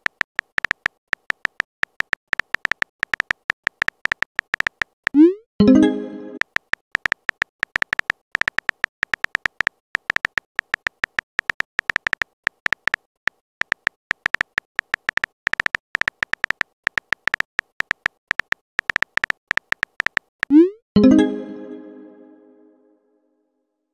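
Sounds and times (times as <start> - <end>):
phone keyboard tap clicks: 0.0 - 4.9, 6.4 - 20.3
bright chime: 5.6 - 6.4, 21.0 - 22.9.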